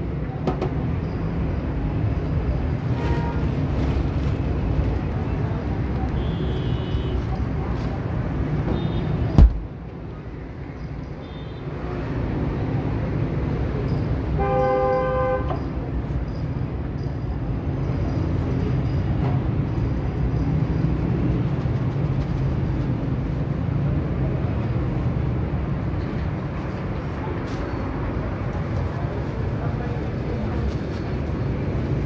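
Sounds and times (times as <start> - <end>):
street traffic rumble: 0.0 - 32.0
sharp thump: 9.3 - 9.7
vehicle horn honking: 14.4 - 15.6.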